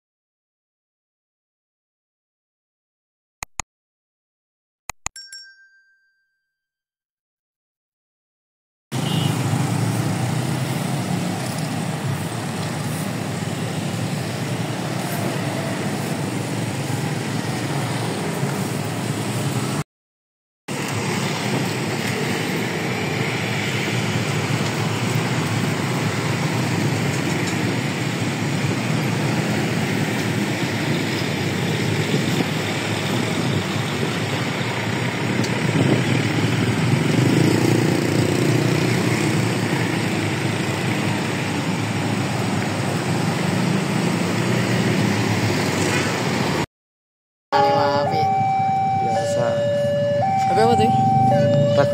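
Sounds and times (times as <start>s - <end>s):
engine and traffic rumble: 8.9s - 19.8s, 20.7s - 46.7s, 47.5s - 51.9s
diesel locomotive engine hum: 20.7s - 37.2s, 47.6s - 51.9s.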